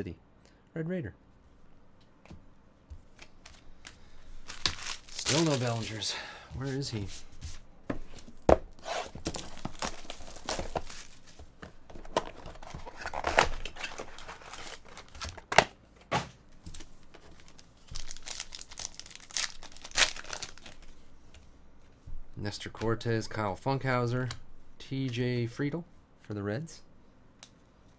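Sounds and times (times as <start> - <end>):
foil wrapper ripping and crinkling: 4.4 - 6.0, 9.2 - 11.2, 12.6 - 15.4, 17.3 - 20.9.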